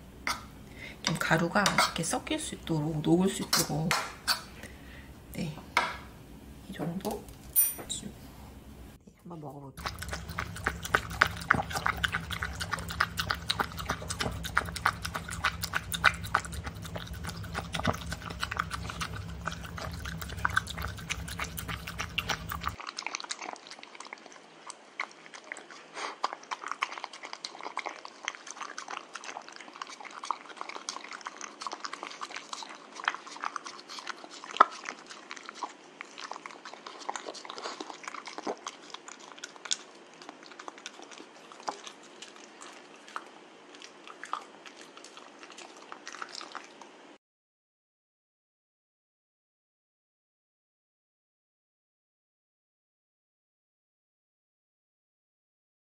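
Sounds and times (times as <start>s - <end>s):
low background hum: 0.0s - 23.0s, 23.8s - 47.2s
dog chewing wet food: 9.8s - 47.1s.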